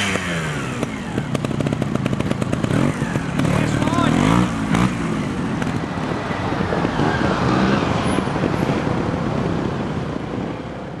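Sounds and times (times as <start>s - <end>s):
motorcycle engine revving: 0.0s - 8.6s.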